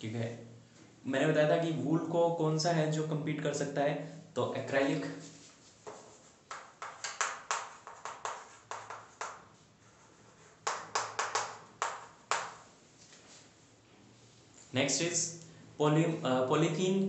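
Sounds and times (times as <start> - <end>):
chalk writing on chalkboard: 5.2 - 12.7.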